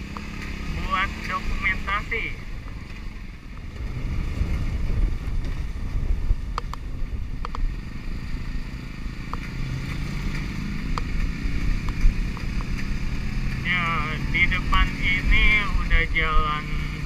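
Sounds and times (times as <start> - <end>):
motorcycle engine running: 0.0 - 17.0
wind buffeting microphone: 2.5 - 13.7.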